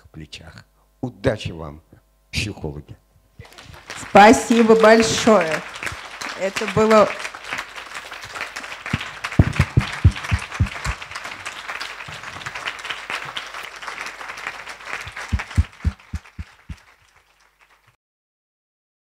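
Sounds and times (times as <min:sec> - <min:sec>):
audience applauding: 0:03.4 - 0:18.0
close heavy claps: 0:03.4 - 0:18.0.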